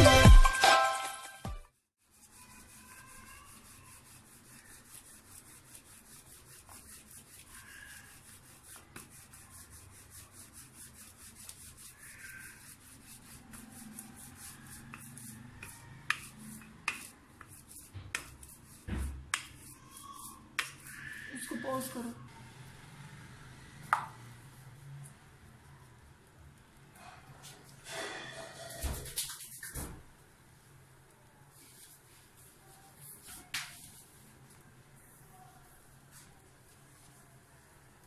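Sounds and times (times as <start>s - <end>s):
rolling pin rubbing on dough: 2.0s - 22.0s.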